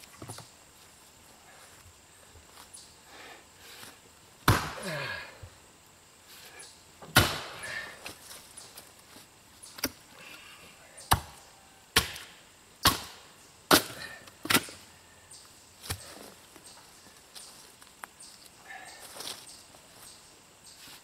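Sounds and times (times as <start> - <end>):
axe chopping wood: 4.4 - 5.1, 7.0 - 7.8, 11.1 - 11.4, 12.0 - 14.7.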